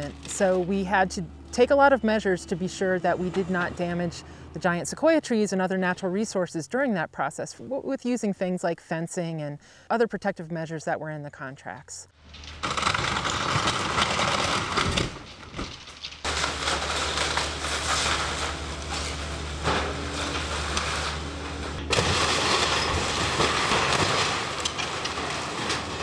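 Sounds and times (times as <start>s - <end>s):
excavator diesel engine running: 0.0s - 6.0s, 16.3s - 23.7s
timber cracking and crashing: 12.2s - 26.0s.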